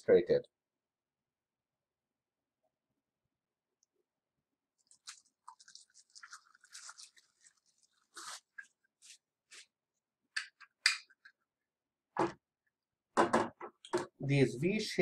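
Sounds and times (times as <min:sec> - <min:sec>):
plastic bag crinkling: 0:04.8 - 0:09.2.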